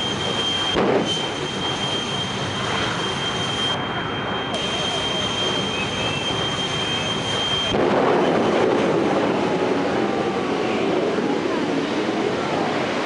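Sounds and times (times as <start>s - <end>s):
turbine engine whine: 0.0s - 13.0s
afterburner rushing blast: 0.4s - 3.1s, 4.6s - 10.5s.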